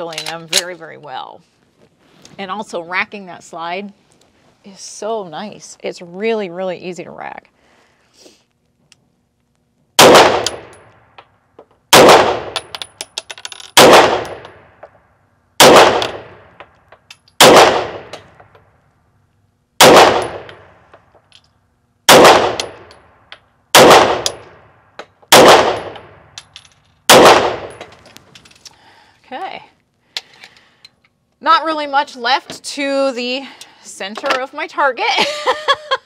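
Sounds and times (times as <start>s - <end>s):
pistol shots echoing indoors: 27.1s - 27.8s.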